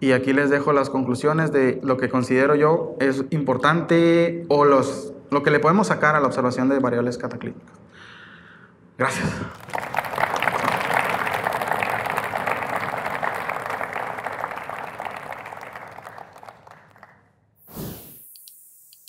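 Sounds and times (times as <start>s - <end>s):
audience applauding: 9.5s - 17.2s.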